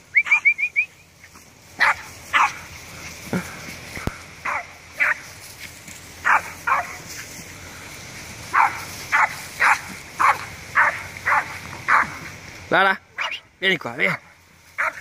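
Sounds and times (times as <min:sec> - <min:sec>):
dog barking: 0:01.8 - 0:02.6, 0:04.4 - 0:05.2, 0:06.2 - 0:07.0, 0:08.5 - 0:12.2, 0:13.2 - 0:13.4, 0:14.8 - 0:15.0.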